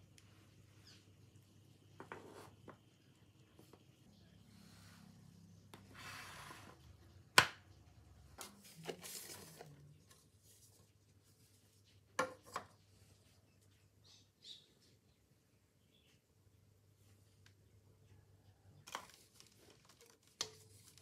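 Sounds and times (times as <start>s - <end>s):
parchment paper crinkling: 18.9s - 21.0s.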